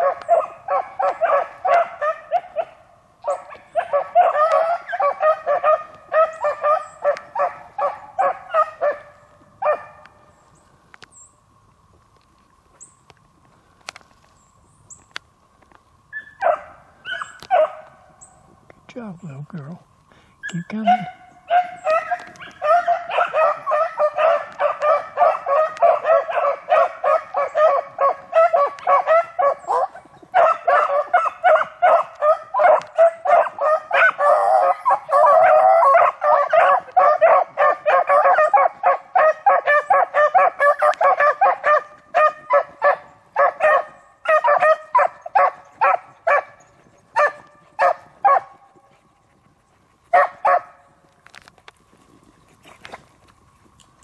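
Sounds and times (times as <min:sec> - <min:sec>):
pack of dogs baying: 0:00.0 - 0:10.3, 0:16.2 - 0:18.2, 0:20.5 - 0:51.6.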